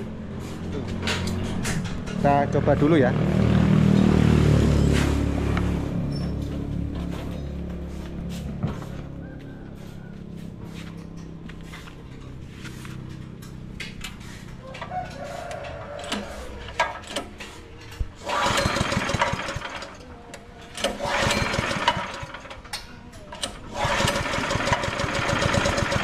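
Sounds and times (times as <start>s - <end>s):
small petrol engine starting and running: 15.8s - 26.0s.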